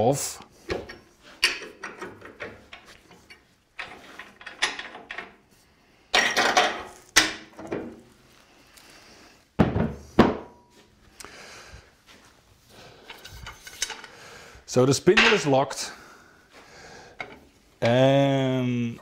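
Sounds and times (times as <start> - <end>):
metal clunks and knocks: 0.6 - 5.4, 6.2 - 8.0
heavy thumps: 9.6 - 10.5.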